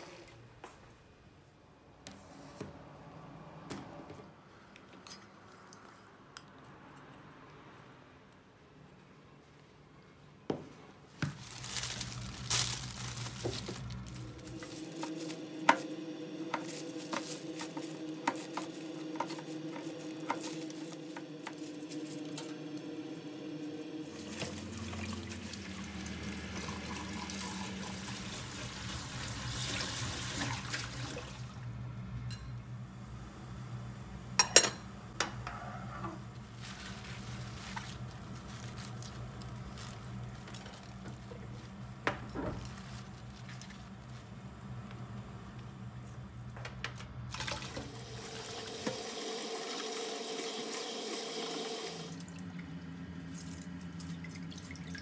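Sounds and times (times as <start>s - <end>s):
tap water running into sink: 24.2s - 31.4s, 47.3s - 52.2s.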